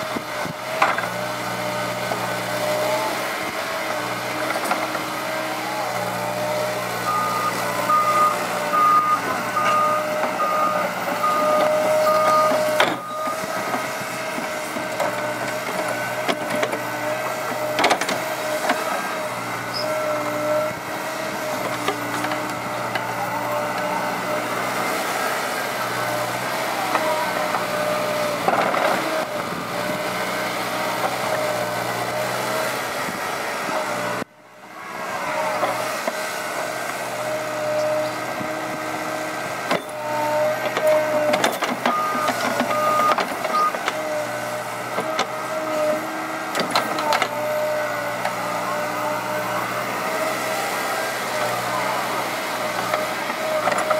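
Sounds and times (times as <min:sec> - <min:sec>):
excavator diesel engine: 0:00.0 - 0:53.9
alarm beeping: 0:07.1 - 0:13.5.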